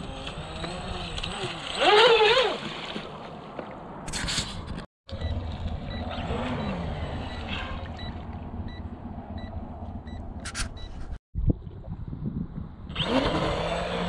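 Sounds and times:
boat motor running: 0.0s - 2.8s
steady low rumble: 6.9s - 12.9s.

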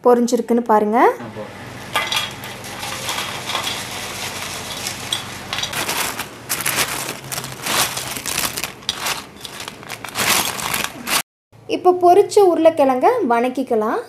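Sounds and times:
steady hiss: 1.2s - 5.8s
crisp fries crunching and rustling: 1.6s - 11.2s.

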